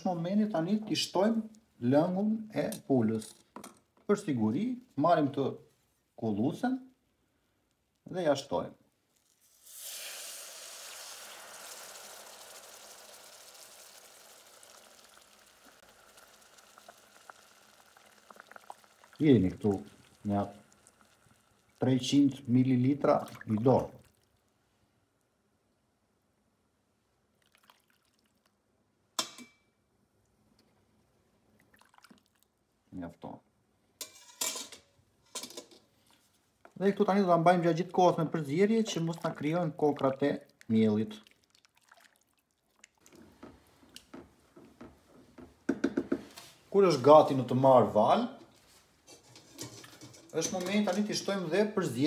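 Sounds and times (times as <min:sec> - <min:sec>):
roux sizzling as broth poured: 0:09.1 - 0:24.2
liquid dripping faintly: 0:13.4 - 0:24.6, 0:27.3 - 0:28.6, 0:30.2 - 0:32.6, 0:38.8 - 0:44.2.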